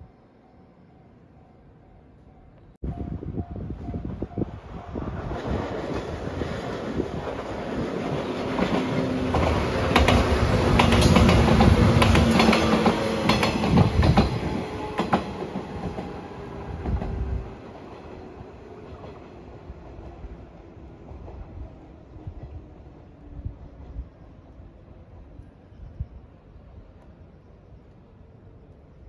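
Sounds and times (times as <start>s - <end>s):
electric train passing: 0.0s - 29.0s
train wheels clacking: 5.1s - 17.2s.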